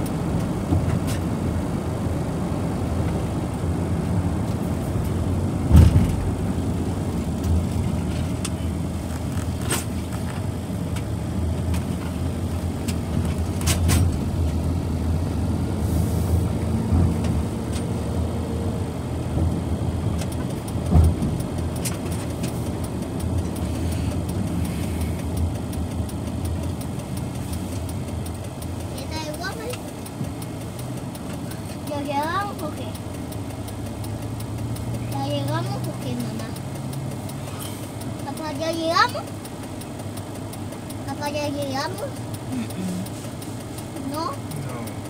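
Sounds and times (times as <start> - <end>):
engine and road noise in car: 0.0 - 45.0
sharp knocks or clicks: 5.0 - 6.6, 19.4 - 27.0.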